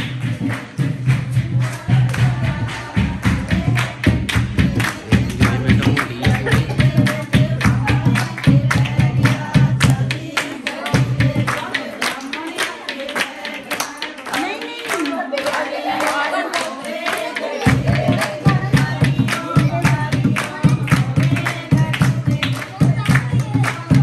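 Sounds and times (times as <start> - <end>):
hand drum thumps: 0.0 - 10.3
rhythmic handclaps: 0.0 - 24.0
women singing folk songs: 1.2 - 24.0.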